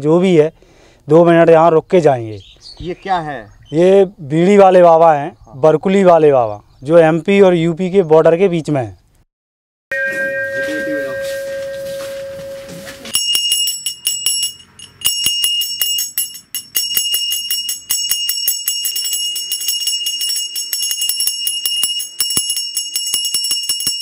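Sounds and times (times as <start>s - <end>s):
small brass hand bell ringing: 9.9s - 24.0s.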